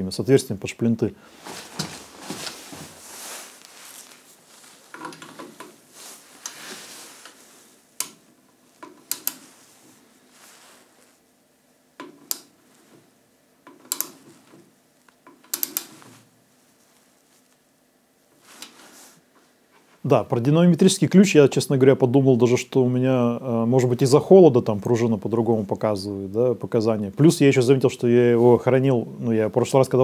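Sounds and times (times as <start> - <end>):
gloved hands rustling: 1.2 - 13.2.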